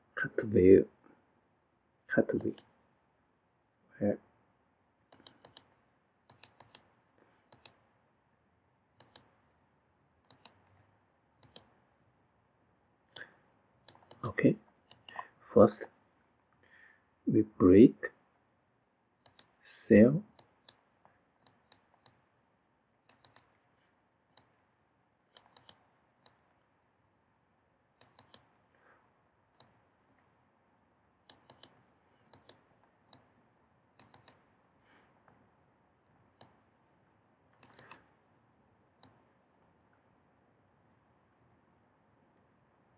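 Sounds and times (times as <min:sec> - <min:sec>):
computer mouse clicks: 0:02.4 - 0:02.7, 0:05.1 - 0:05.7, 0:06.3 - 0:07.8, 0:09.0 - 0:09.3, 0:10.2 - 0:10.7, 0:11.4 - 0:11.7, 0:13.2 - 0:14.3, 0:14.9 - 0:15.2, 0:19.2 - 0:19.6, 0:20.4 - 0:20.8, 0:21.4 - 0:22.2, 0:23.0 - 0:23.5, 0:25.3 - 0:26.4, 0:28.0 - 0:28.5, 0:31.3 - 0:33.3, 0:34.0 - 0:34.4, 0:37.6 - 0:38.0.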